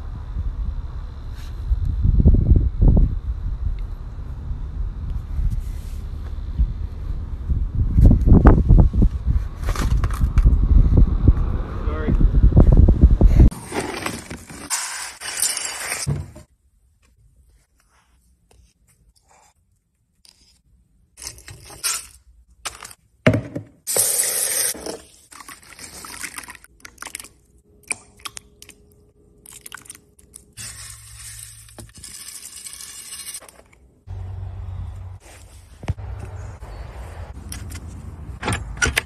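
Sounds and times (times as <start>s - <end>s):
clinks and scrapes: 21.2s - 23.0s, 30.6s - 33.9s.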